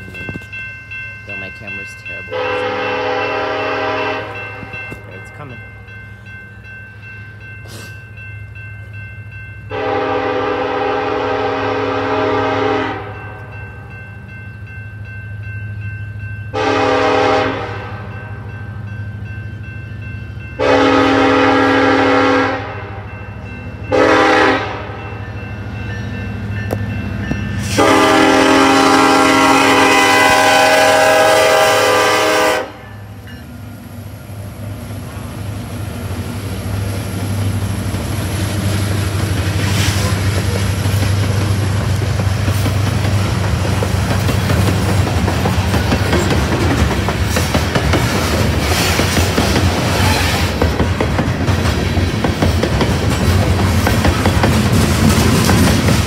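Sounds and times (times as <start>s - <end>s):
locomotive air horn blasts: 2.3s - 5.0s, 9.7s - 13.3s, 16.6s - 18.2s, 20.6s - 23.1s, 23.9s - 25.0s, 27.6s - 32.9s
locomotive rumble: 18.8s - 56.0s
train wheels clickety-clack: 36.8s - 56.0s.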